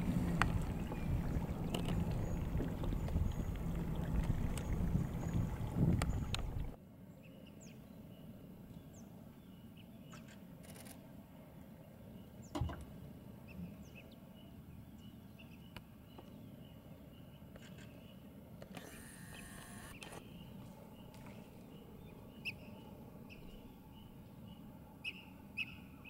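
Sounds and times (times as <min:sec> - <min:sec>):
low rumbling noise: 0:00.0 - 0:06.8
waterside ambience: 0:00.0 - 0:26.0.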